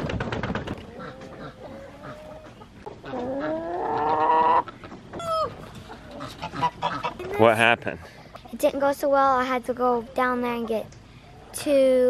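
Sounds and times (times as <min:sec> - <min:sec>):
chicken squawk: 0:00.9 - 0:07.4.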